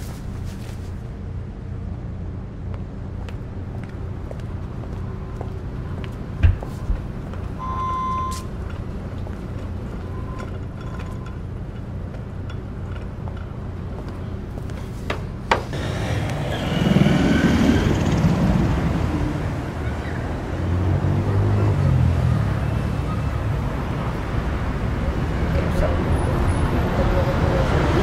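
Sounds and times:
cars driving past: 15.6s - 28.0s.

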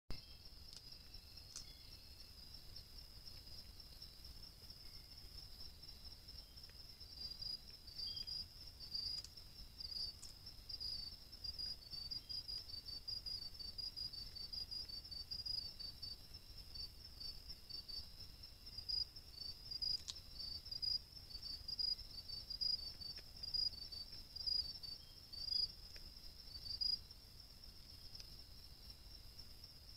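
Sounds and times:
insect chirps: 0.1s - 29.9s
faint sharp clicks: 1.5s - 1.8s, 9.0s - 9.4s, 19.9s - 20.2s.

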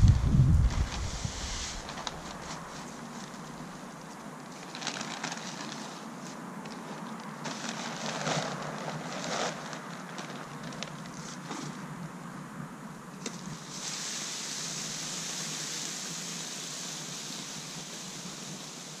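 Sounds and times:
crackles and scuffs: 0.0s - 11.9s
wind rustling: 0.0s - 19.0s.

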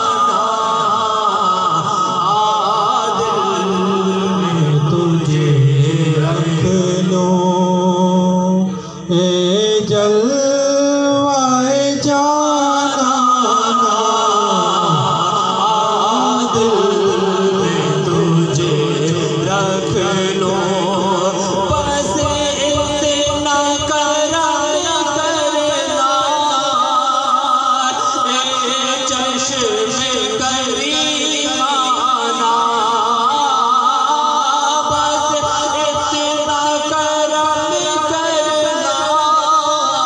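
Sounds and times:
man singing devotional chant: 0.0s - 40.0s.

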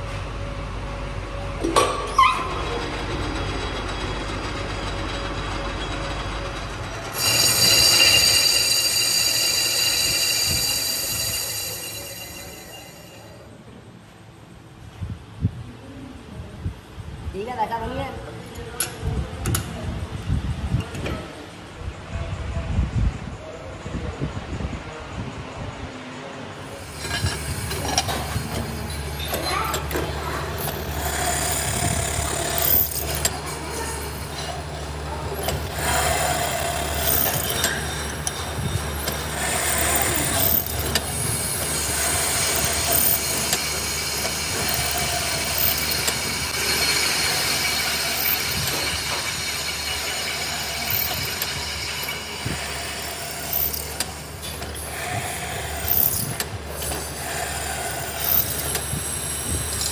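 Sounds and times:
drill press motor hum: 6.8s - 13.4s, 26.7s - 59.9s
drill bit scraping metal: 7.1s - 13.5s, 26.6s - 59.9s.

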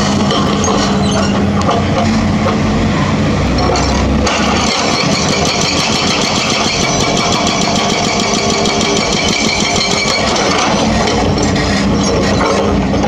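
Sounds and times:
excavator diesel engine running: 0.0s - 13.0s
hydraulic breaker hammering concrete: 3.6s - 13.0s.

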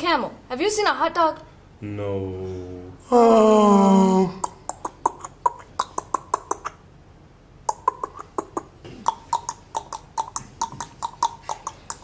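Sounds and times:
tongue clicks imitating hooves: 4.4s - 6.8s, 7.7s - 12.0s.

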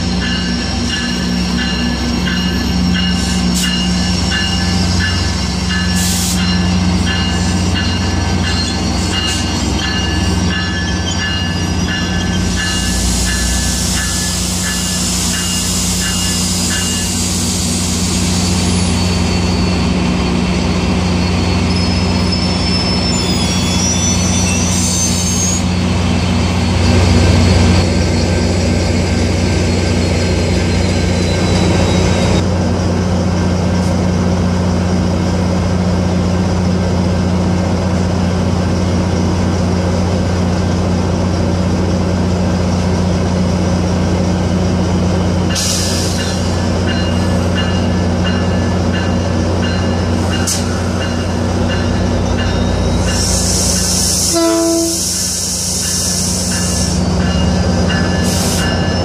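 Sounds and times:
train wheels squealing: 0.0s - 32.4s, 44.8s - 59.0s
diesel locomotive engine hum: 0.0s - 59.0s.

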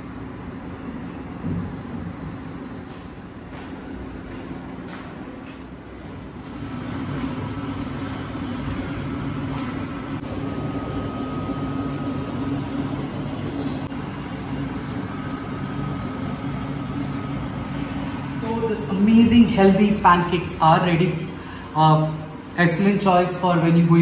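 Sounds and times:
low mechanical hum: 0.0s - 24.0s
faint high whine: 6.4s - 20.4s.

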